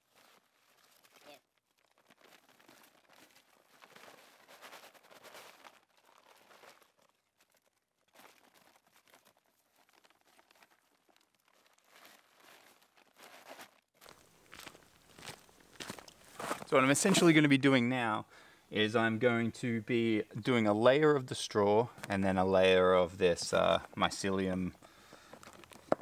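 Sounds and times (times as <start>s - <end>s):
plastic sack crinkling: 0.0s - 17.3s, 23.6s - 26.0s
straw rustling: 0.0s - 17.5s, 22.0s - 26.0s.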